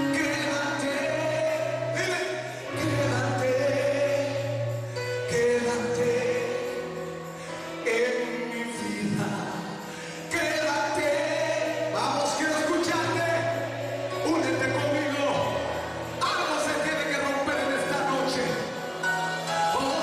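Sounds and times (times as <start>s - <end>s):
man singing gospel song: 0.0s - 20.0s.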